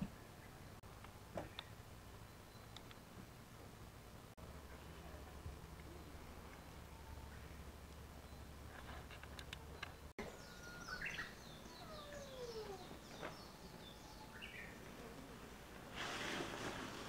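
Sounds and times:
small birds chirping: 4.5s - 15.6s.

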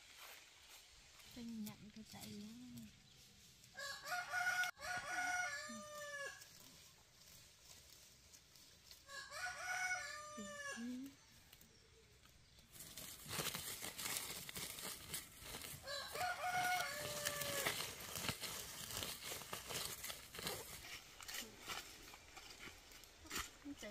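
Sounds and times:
rooster crowing: 3.8s - 6.5s, 9.0s - 11.0s, 15.8s - 17.8s.

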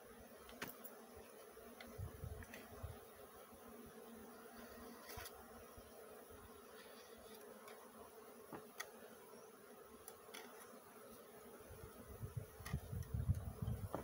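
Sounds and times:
bees buzzing: 0.0s - 14.0s.

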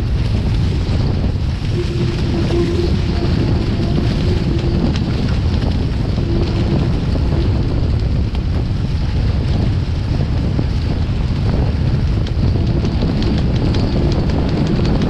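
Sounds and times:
water rushing and spraying: 0.0s - 8.9s
wind buffeting microphone: 0.0s - 15.0s.

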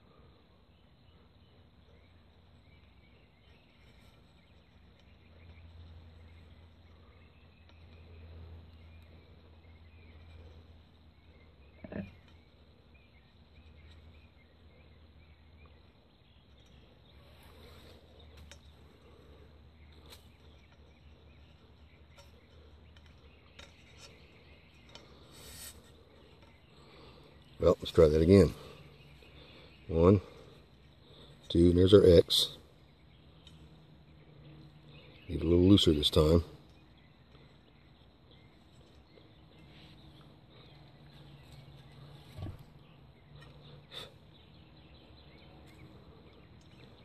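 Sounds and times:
low outdoor hum: 0.0s - 47.0s
cord rustle: 23.6s - 26.6s.

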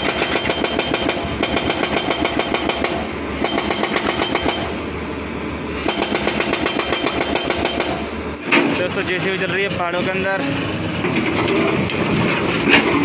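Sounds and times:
hydraulic rock breaker hammering: 0.0s - 4.8s, 5.8s - 9.4s, 11.0s - 13.0s
diesel engine running: 0.0s - 13.0s.

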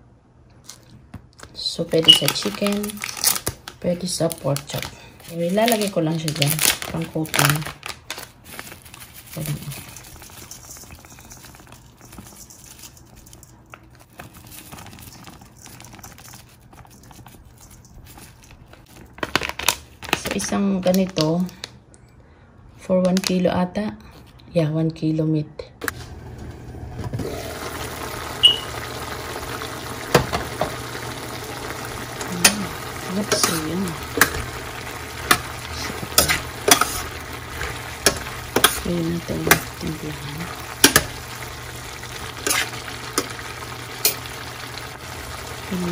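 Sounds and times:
plastic packet crinkling: 0.6s - 21.7s, 28.8s - 45.9s
patter of falling powder: 1.9s - 20.3s
food sizzling in a pan: 26.1s - 45.9s.

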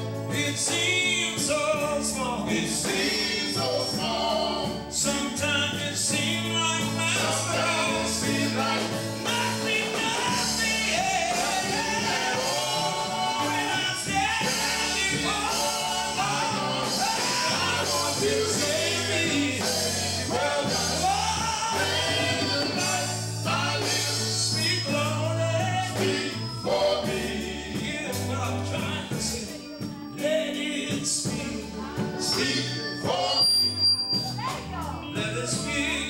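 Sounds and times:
male vocal quartet singing: 0.0s - 33.9s, 35.0s - 36.0s
bass line: 0.0s - 36.0s
guitar: 0.0s - 36.0s
keyboard: 0.0s - 36.0s.

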